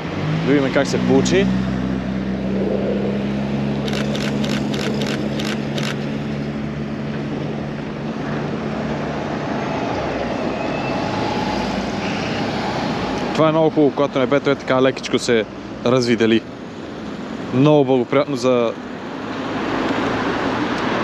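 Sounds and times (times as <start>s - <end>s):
steady engine hum: 0.0s - 21.0s
street traffic noise: 0.0s - 21.0s
camera shutter clicks: 3.8s - 6.0s.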